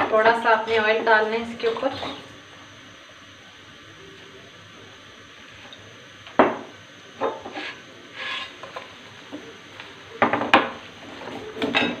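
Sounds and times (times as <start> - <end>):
low frying sizzle: 0.0 - 12.0
metal spatula scraping frying pan: 1.8 - 2.3, 7.5 - 8.6.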